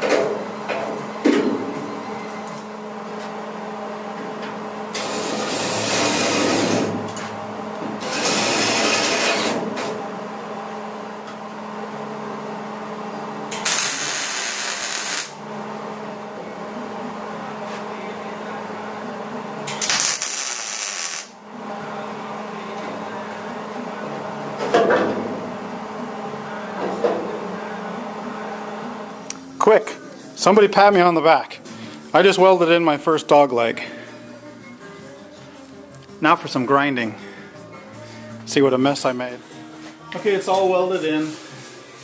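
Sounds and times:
steady low hum: 0.0 - 42.0
welder arc bursts: 13.5 - 15.4, 19.7 - 21.4.

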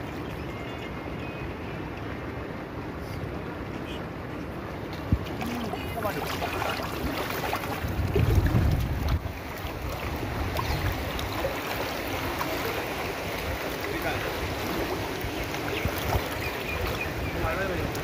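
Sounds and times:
water splashing: 4.7 - 18.0
wind rumble on microphone: 5.0 - 12.2, 13.1 - 18.0.

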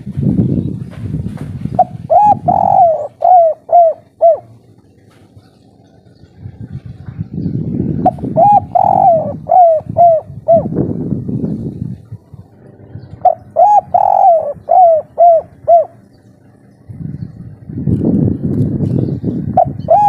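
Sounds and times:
low rumbling noise: 0.0 - 20.0
dove cooing: 1.8 - 11.4, 12.0 - 17.0, 19.3 - 20.0.

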